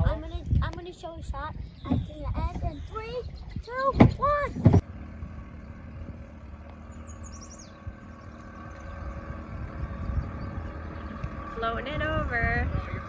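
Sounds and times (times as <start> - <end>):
outboard motor running: 0.0 - 13.0
bird chirping: 1.5 - 4.5, 6.7 - 11.6.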